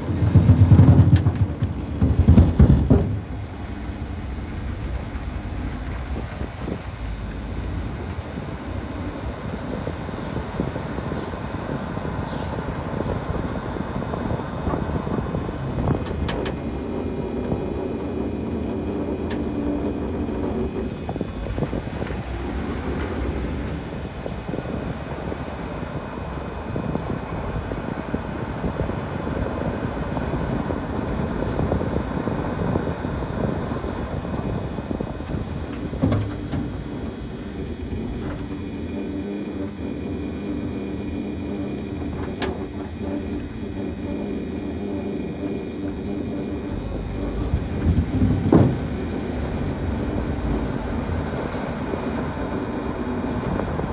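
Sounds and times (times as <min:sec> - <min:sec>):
faint hum: 0:00.0 - 0:53.9
pickup truck rumbling: 0:00.0 - 0:53.9
road and wind noise: 0:00.0 - 0:53.9
thump: 0:00.2 - 0:03.3, 0:36.0 - 0:36.6, 0:47.8 - 0:48.9.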